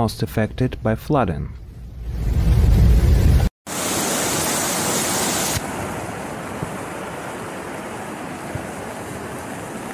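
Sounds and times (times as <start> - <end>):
floodwater rushing: 3.7 - 9.9.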